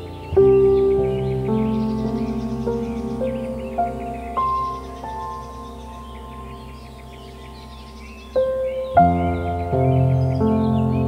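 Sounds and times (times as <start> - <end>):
small bird chirps: 0.0 - 11.0
soft new-age music: 0.0 - 11.0.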